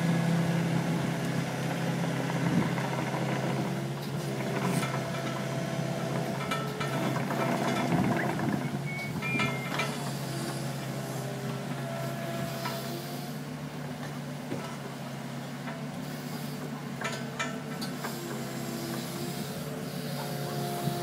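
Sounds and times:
engine whine: 0.0 - 13.4
diesel excavator engine running: 0.0 - 21.0.

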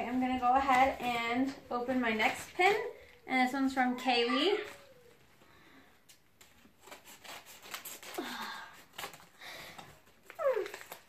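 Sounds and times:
paper envelopes crinkling: 6.1 - 11.0.

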